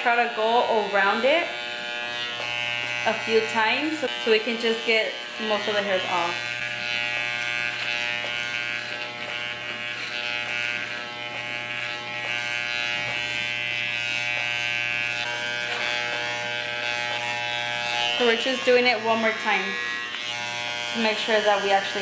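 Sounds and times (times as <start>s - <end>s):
electric hair clippers buzzing: 0.0s - 22.0s.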